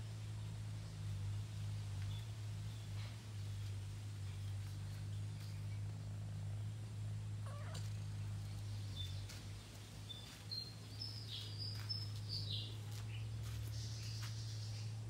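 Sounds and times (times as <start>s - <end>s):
steady low hum: 0.0s - 15.0s
cat meowing: 7.4s - 8.0s.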